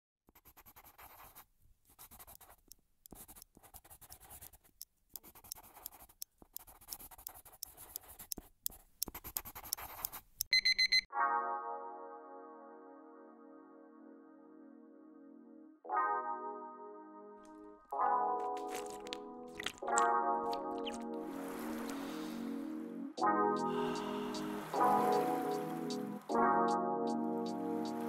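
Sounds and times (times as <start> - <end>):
pen scratching on paper: 0.3 - 10.4, 18.5 - 19.8
high electronic alarm beeps: 10.5 - 11.1
held synthesizer chord: 11.1 - 18.5, 20.1 - 28.0.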